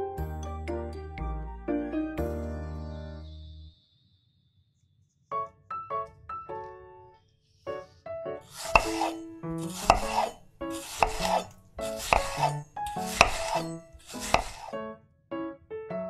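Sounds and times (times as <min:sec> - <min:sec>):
soft piano music: 0:00.0 - 0:03.7, 0:05.3 - 0:08.5, 0:09.2 - 0:09.8, 0:14.7 - 0:16.0
knife chopping fruit on board: 0:08.5 - 0:14.7.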